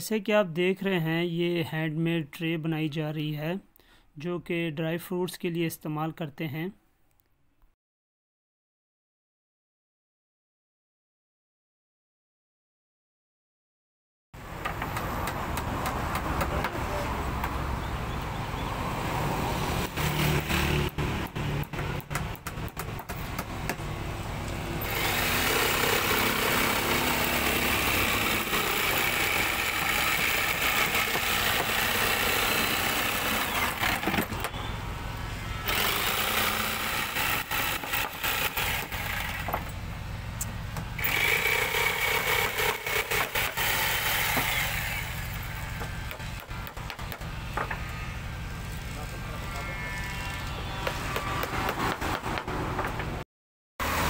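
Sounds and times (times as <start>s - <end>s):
electric jigsaw sawing wood: 19.2s - 24.1s, 24.7s - 34.6s, 35.6s - 39.7s, 41.0s - 47.8s.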